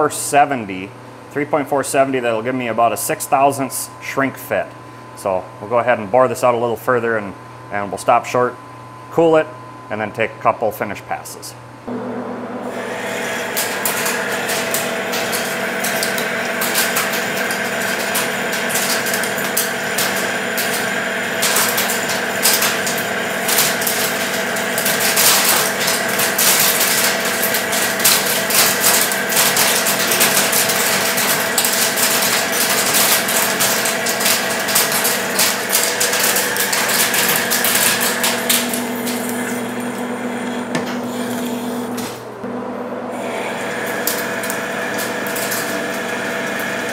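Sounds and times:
metal lathe gear whine: 11.9 - 46.9
boring bar cutting metal: 12.6 - 46.9.

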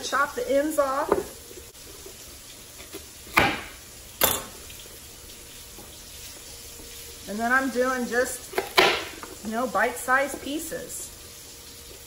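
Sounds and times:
knife chopping on wooden board: 3.3 - 3.8.

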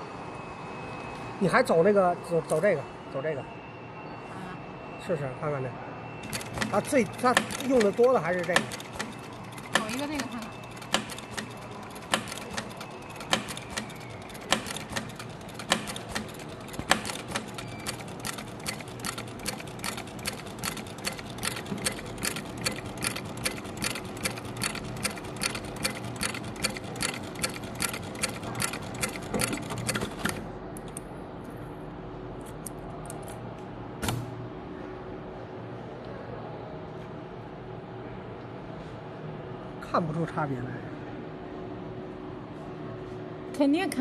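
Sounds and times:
sewing machine clicking: 6.2 - 31.0.

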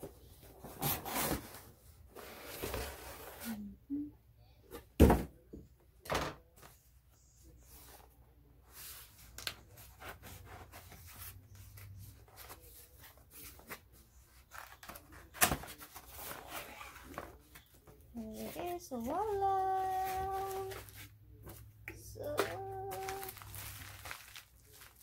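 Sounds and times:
cardboard box rustling and scraping: 0.4 - 3.5.

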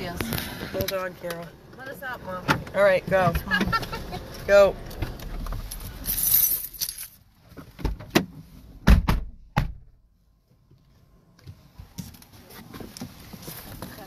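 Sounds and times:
metallic jingle: 5.7 - 7.2
car door clicks and knocks: 7.7 - 9.9
car door thud: 7.8 - 10.0.

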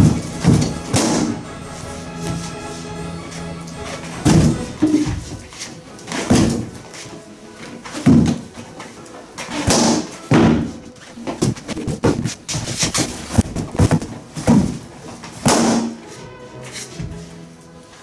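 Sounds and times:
balloon bursting: 0.0 - 1.6, 9.5 - 14.8, 15.4 - 16.1
background music: 0.0 - 18.0
balloons thumping on wood: 4.2 - 5.5, 6.1 - 6.9, 8.0 - 8.6, 9.4 - 16.1.

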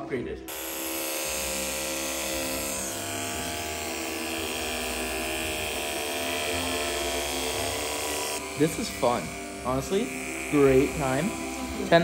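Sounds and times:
electric hair clippers buzzing: 0.5 - 12.0.

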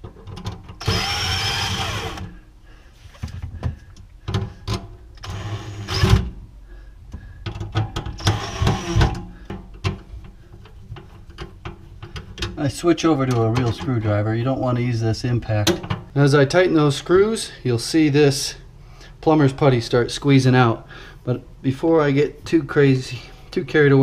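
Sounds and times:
impact driver whining: 0.8 - 2.4, 5.2 - 6.3, 8.2 - 9.2
handling clicks and knocks: 9.1 - 12.6, 15.6 - 16.1.

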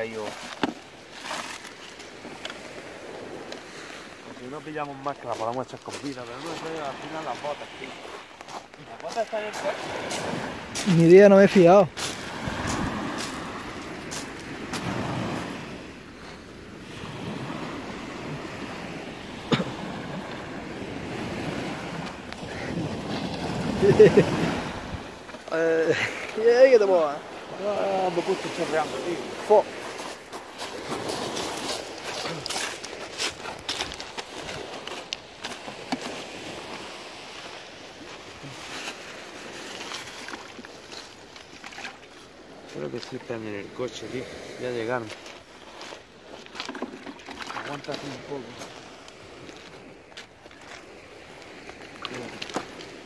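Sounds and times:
sea surf washing on shore: 0.0 - 53.0
footsteps crunching on pebbles: 4.8 - 11.0, 29.8 - 36.2
wind on microphone: 12.1 - 15.9.

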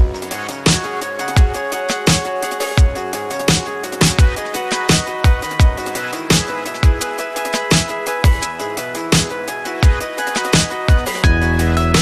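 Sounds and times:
kick drum and percussion beat: 0.0 - 12.0
deep bass line: 10.9 - 12.0.

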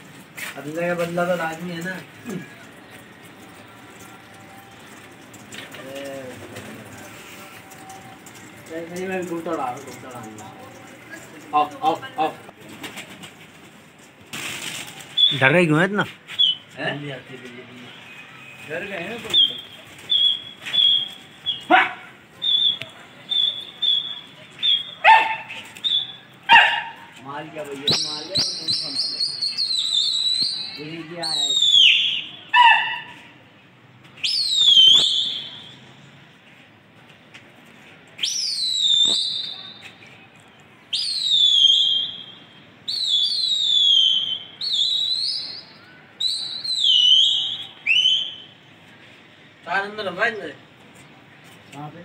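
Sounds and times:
shrill whistle blasts: 15.2 - 15.6, 16.3 - 16.8, 17.9 - 21.8, 22.4 - 26.3, 27.9 - 33.0, 34.2 - 35.9, 38.2 - 40.0, 40.9 - 48.6.

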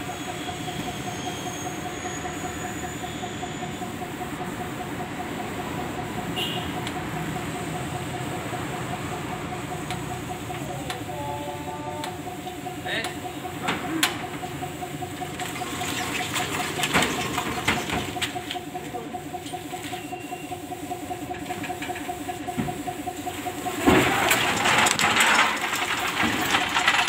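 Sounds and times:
engine idling: 0.0 - 27.0
metal clatter of stacker: 23.8 - 27.0.

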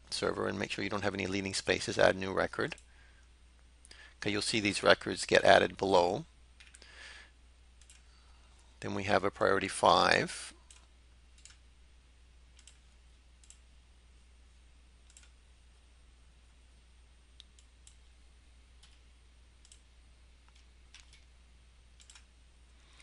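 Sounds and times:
low electrical hum: 0.0 - 23.0
computer mouse and keyboard clicks: 6.6 - 6.8, 12.6 - 13.6, 15.0 - 15.4, 19.6 - 19.8, 20.5 - 21.3, 22.0 - 22.3.

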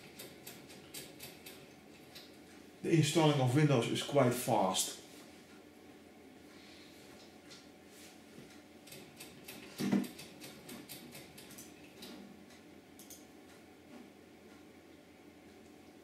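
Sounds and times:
light ticks and clicks: 10.2 - 13.6.

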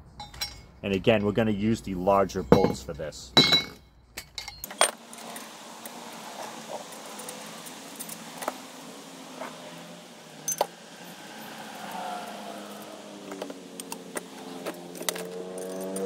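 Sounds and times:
metal pieces clinking: 3.4 - 5.0, 10.4 - 10.7, 14.9 - 16.0.

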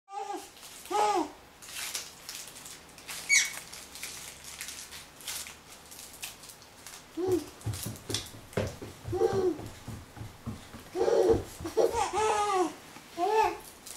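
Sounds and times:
toddler vocalizing: 7.2 - 7.5, 9.0 - 9.7, 11.0 - 13.6
socked feet on wooden floor: 7.2 - 12.6.

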